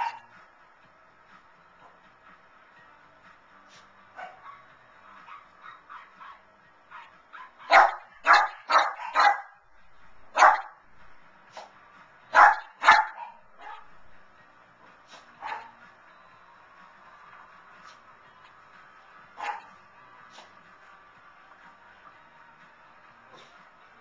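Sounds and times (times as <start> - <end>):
dog barking: 0.0 - 0.3, 4.2 - 9.6, 10.3 - 10.8, 12.3 - 13.9, 15.2 - 15.8, 19.4 - 19.7
faint television sound: 14.8 - 24.0.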